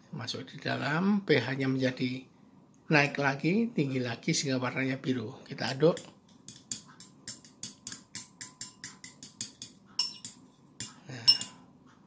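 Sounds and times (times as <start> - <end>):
metal stirrer clinking on glass: 6.0 - 11.6.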